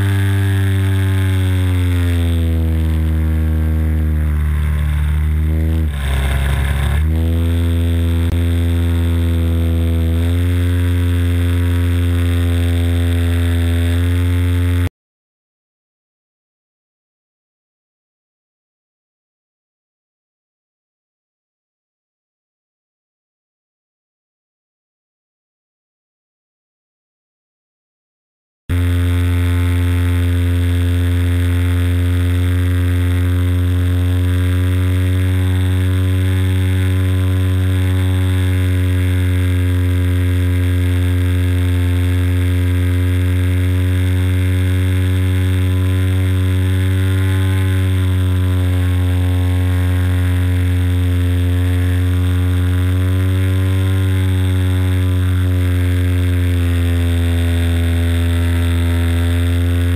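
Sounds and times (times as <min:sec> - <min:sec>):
model airplane engine: 0:00.0 - 0:14.9, 0:28.7 - 0:59.9.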